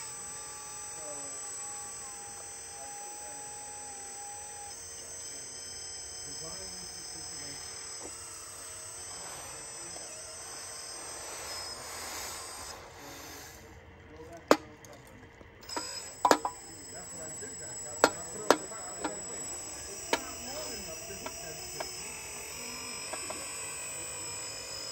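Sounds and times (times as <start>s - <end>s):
high-pitched motor whine: 0.0s - 24.9s.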